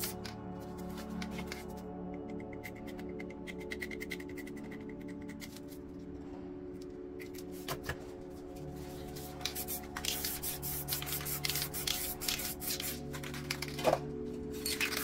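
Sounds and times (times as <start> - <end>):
soft ambient music: 0.0 - 15.0
spray paint can hissing: 9.2 - 13.0.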